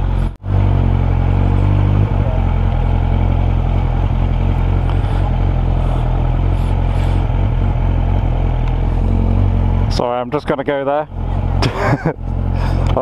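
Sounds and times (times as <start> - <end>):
motorcycle engine running at low revs: 0.0 - 13.0.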